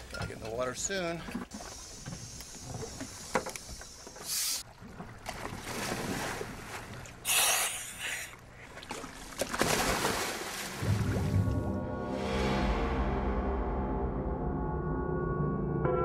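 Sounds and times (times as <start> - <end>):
wind and water hiss: 0.0 - 4.7, 5.8 - 8.8
divers splashing into water: 8.9 - 11.6.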